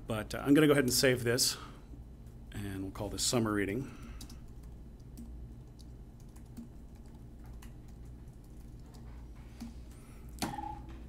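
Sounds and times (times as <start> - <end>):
computer keyboard keystrokes: 4.1 - 9.7.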